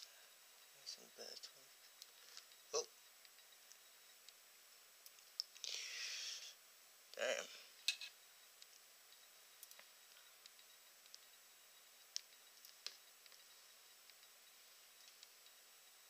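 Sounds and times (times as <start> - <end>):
faint ticks: 8.5 - 16.0.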